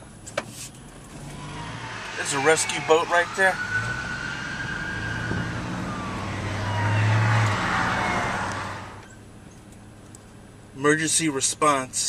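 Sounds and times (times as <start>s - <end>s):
vehicle passing by: 1.0s - 9.1s
faint tone dropping in pitch: 1.1s - 9.1s.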